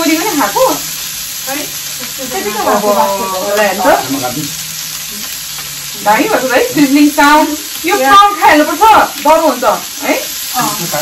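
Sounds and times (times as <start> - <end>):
food sizzling on griddle: 0.0 - 11.0
voices chattering: 1.5 - 5.3.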